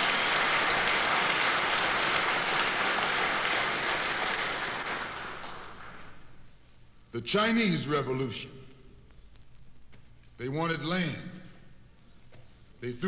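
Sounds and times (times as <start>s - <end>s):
audience applauding: 0.0s - 6.3s.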